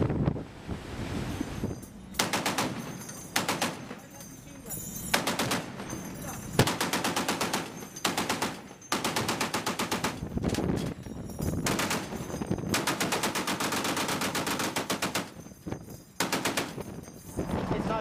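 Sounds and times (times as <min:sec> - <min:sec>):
machine gun firing bursts: 0:02.2 - 0:03.9, 0:05.1 - 0:05.8, 0:06.6 - 0:10.3, 0:11.6 - 0:15.3, 0:16.2 - 0:16.8.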